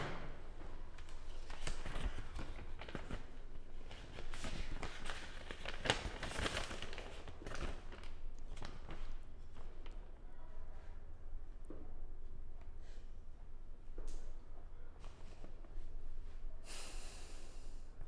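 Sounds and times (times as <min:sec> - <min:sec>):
paper rustling and crinkling: 0:01.0 - 0:10.0.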